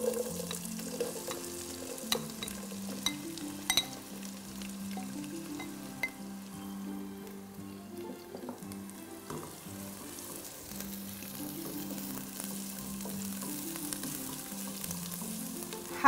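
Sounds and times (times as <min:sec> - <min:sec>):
spatula tapping pot: 0:00.0 - 0:04.1, 0:04.9 - 0:06.2, 0:09.3 - 0:09.6
onion sizzling in oil: 0:00.0 - 0:16.0
soft background music: 0:00.0 - 0:16.0.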